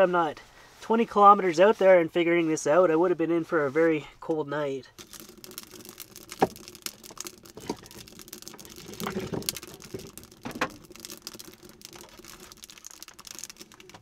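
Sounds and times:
wood fire crackling: 4.8s - 14.0s.

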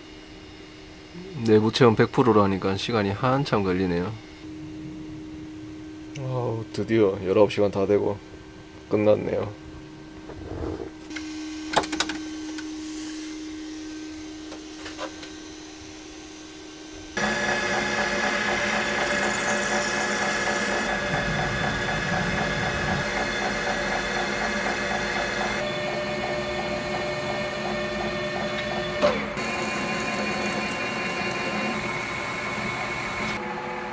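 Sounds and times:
three d printer humming: 13.6s - 33.9s
lathe drilling into metal: 17.2s - 33.4s
metal lathe running: 17.2s - 33.9s.

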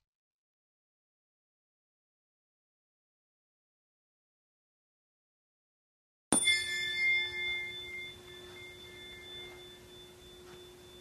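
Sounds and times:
bell-like ding: 6.3s - 11.0s.

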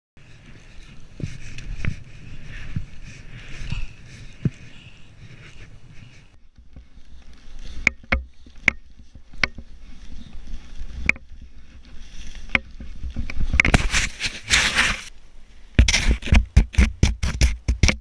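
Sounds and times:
skis rushing through powder snow: 9.6s - 15.1s
sharp clicks and knocks: 15.8s - 18.0s.

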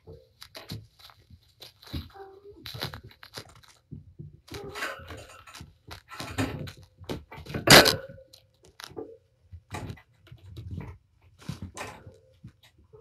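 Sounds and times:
cat claws scratching: 0.0s - 12.8s.

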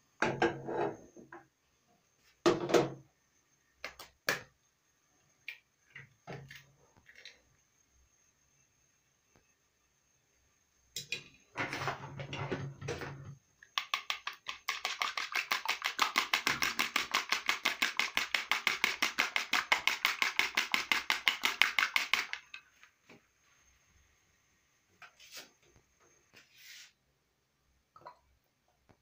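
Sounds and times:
spoon beating egg in bowl: 13.6s - 22.6s.

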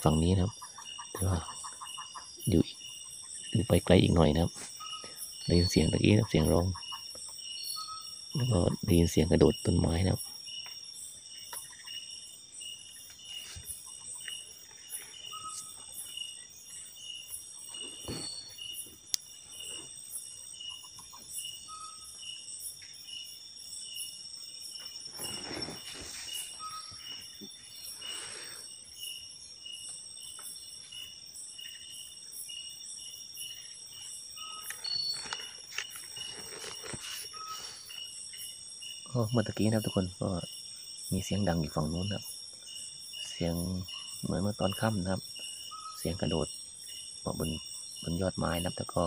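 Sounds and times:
crickets and insects trilling: 0.0s - 49.0s
pulsing insect chirp: 0.0s - 49.0s
brief rustles: 34.7s - 38.0s.

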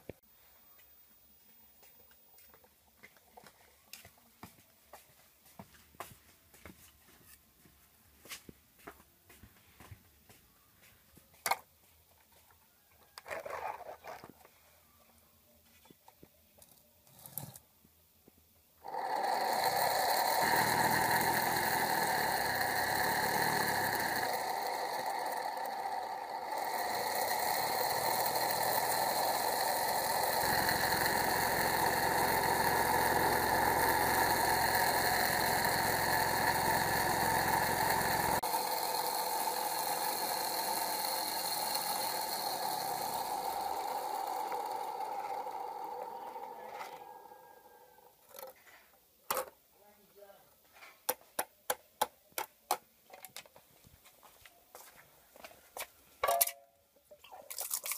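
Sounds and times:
small fan whirring: 18.8s - 48.7s.

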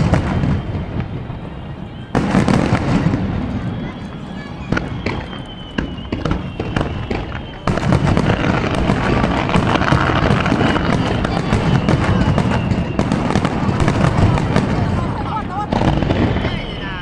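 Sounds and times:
fireworks booms and crackling: 0.0s - 17.0s.

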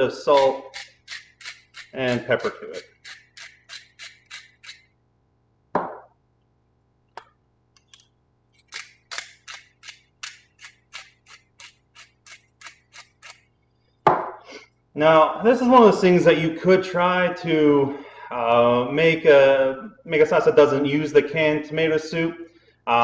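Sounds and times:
spice grinder clicking: 0.3s - 4.9s, 7.8s - 13.4s.

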